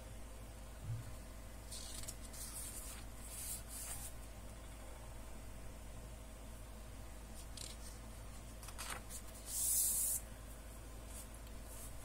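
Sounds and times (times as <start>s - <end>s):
paper pages rustling: 1.7s - 4.1s, 8.6s - 10.2s.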